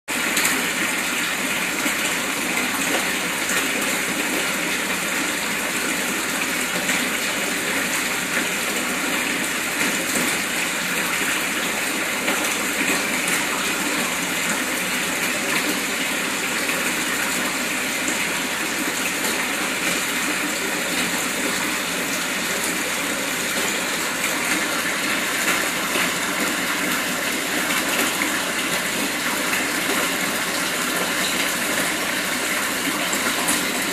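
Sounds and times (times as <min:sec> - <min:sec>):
aquarium air bubbles: 0:00.1 - 0:33.9.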